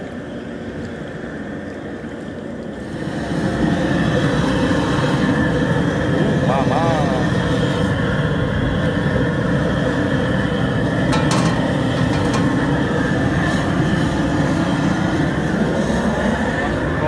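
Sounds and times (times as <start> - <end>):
propane burner roaring: 0.0 - 17.0
metal lid clinking on pot: 11.1 - 12.6.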